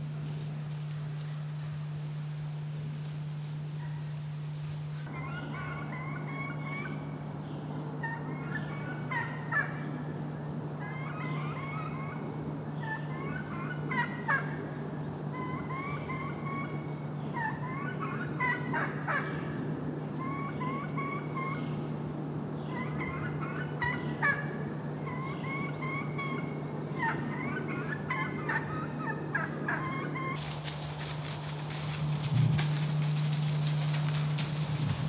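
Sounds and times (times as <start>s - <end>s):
crackling rustle: 0.0s - 5.1s, 30.4s - 35.0s
steady low hum: 0.0s - 35.0s
wild turkeys calling: 5.0s - 7.2s, 8.0s - 10.1s, 10.8s - 14.7s, 15.3s - 21.9s, 22.6s - 35.0s.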